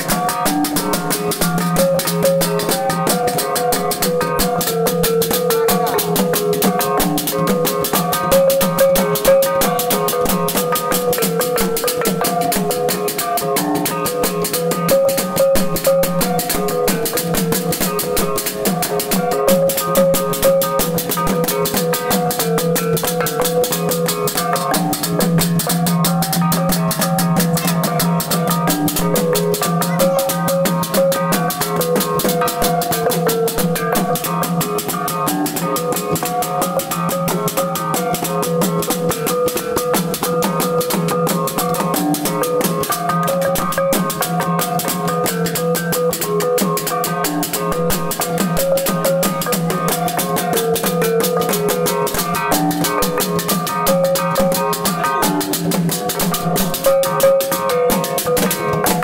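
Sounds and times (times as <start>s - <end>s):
wooden drums beating: 0.0s - 59.0s.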